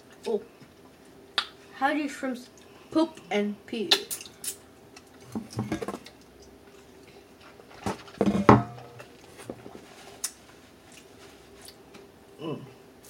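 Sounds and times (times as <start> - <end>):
dishes clinking: 8.2 - 9.2.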